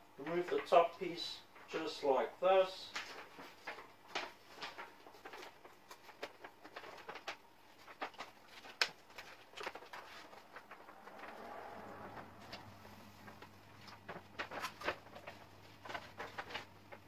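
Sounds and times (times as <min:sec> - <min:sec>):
vinyl crackling and crinkling: 0:00.2 - 0:17.0
backing paper peeling rustle: 0:02.9 - 0:17.0.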